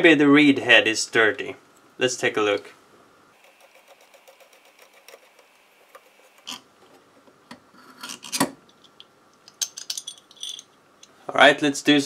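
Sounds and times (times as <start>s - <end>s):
metal parts scraping: 7.8s - 8.5s.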